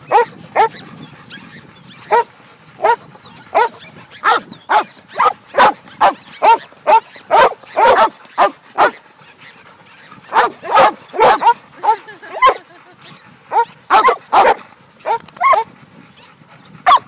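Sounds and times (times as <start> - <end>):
dog barking: 0.1 - 0.7, 2.1 - 9.0, 10.3 - 12.6, 13.5 - 15.7.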